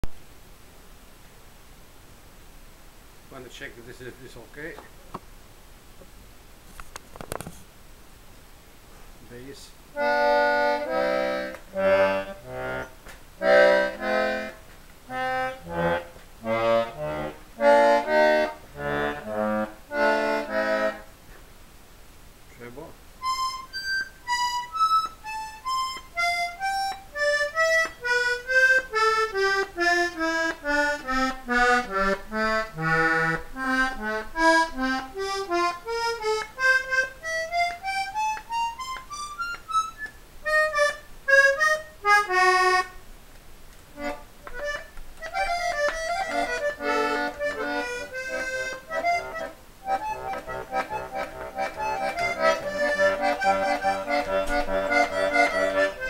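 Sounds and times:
accordion notes and chords: 9.4s - 21.3s, 22.6s - 43.1s, 43.9s - 56.0s.

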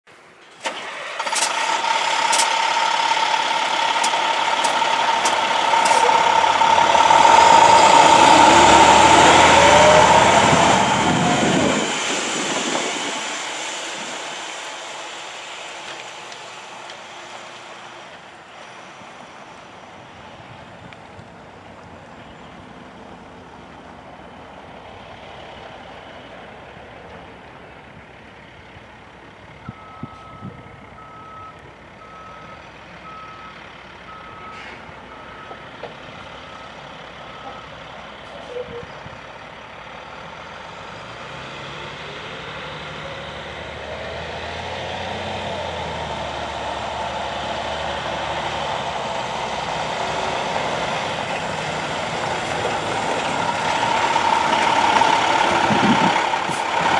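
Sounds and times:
diesel truck engine: 0.1s - 56.9s
truck back-up alarm beeping: 2.0s - 11.8s, 29.6s - 39.0s.

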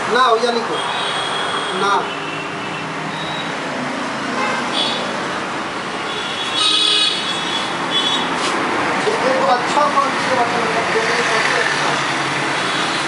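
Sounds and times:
road traffic: 0.0s - 13.0s.

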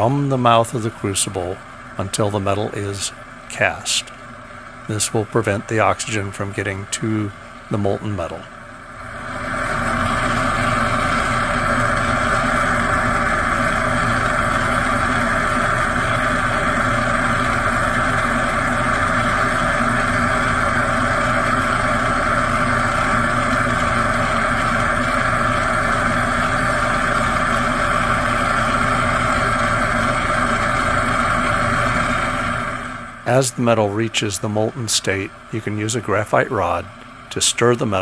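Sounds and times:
torch flame rushing: 8.8s - 37.7s.

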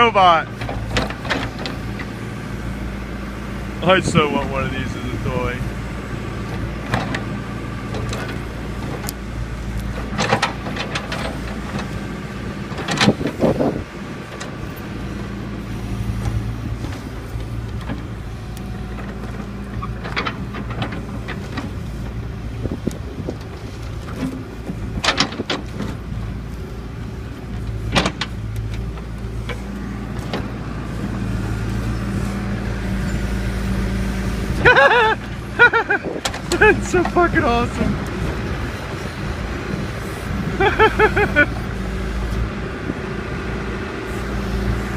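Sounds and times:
diesel engine running: 0.0s - 44.9s.

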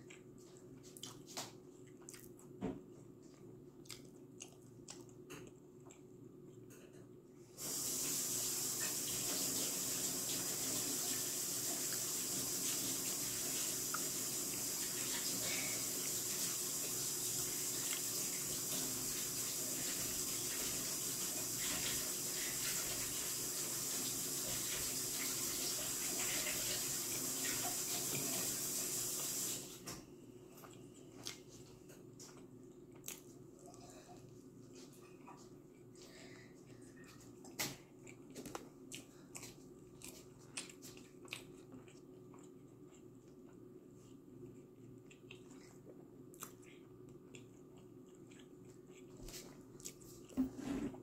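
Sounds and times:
soft chewing clicks: 0.0s - 7.0s, 30.5s - 35.9s, 36.6s - 50.4s
steady hiss: 7.6s - 29.8s
water running from a tap: 7.6s - 29.8s.

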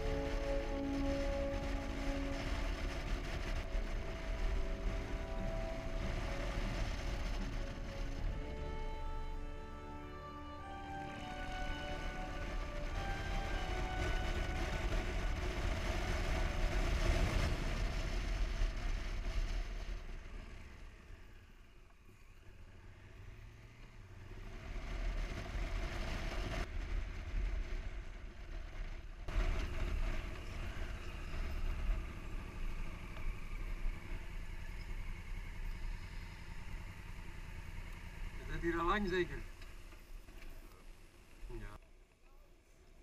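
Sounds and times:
motorcycle engine running: 0.0s - 9.3s, 11.5s - 41.6s
wind rush on microphone: 12.4s - 20.8s.

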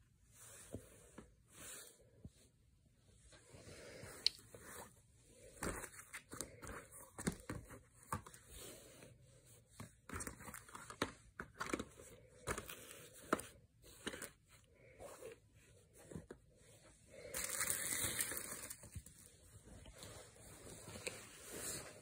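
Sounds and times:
handling rustle and crinkling: 4.0s - 22.0s.

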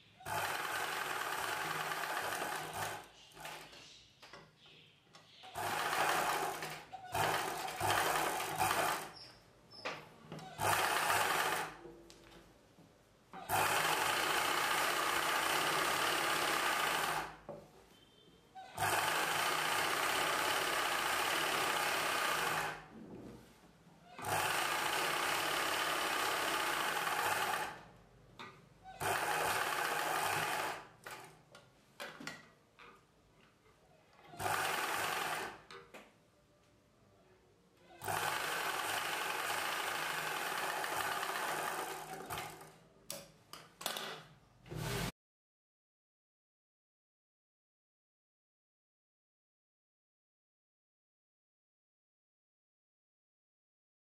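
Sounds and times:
sewing machine stitching: 0.2s - 3.8s, 5.5s - 9.2s, 10.4s - 11.8s, 13.4s - 17.4s, 18.7s - 22.9s, 24.2s - 27.9s, 28.9s - 31.4s, 34.3s - 35.7s, 38.0s - 42.8s, 44.7s - 45.1s.

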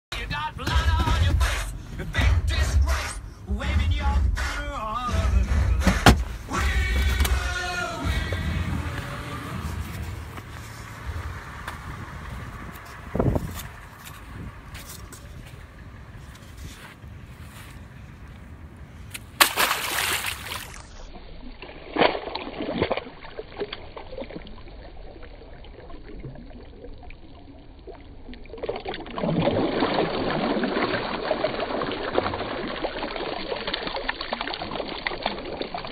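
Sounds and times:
sharp knock: 5.8s - 6.3s.

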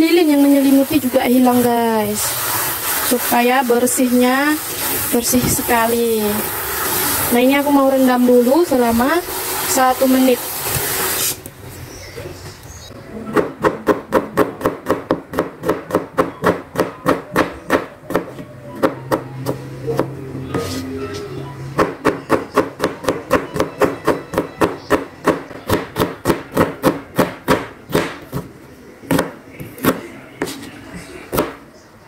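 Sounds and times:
knife chopping on cutting board: 13.4s - 19.2s, 21.8s - 28.5s, 29.1s - 30.6s.

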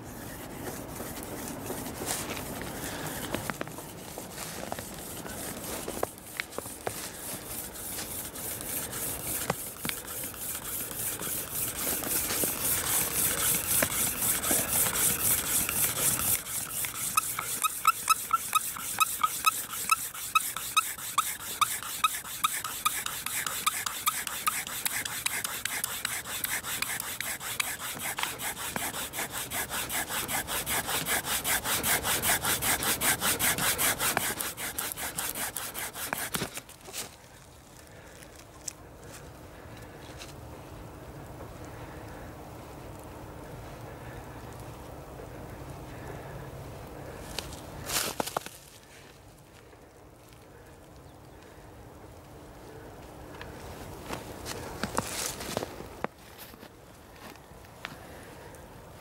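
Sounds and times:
fire thong rasping on wood: 0.3s - 36.8s
fire thong squeaking: 7.8s - 36.4s.

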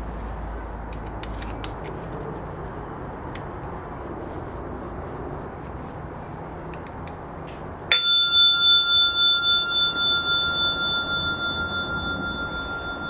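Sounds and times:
bicycle bell ding: 7.9s - 13.0s.

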